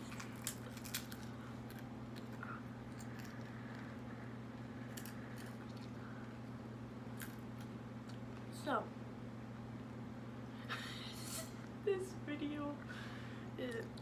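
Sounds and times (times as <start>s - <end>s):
crunching potato chips: 0.0s - 6.5s, 7.1s - 8.2s
low hum: 0.0s - 14.0s.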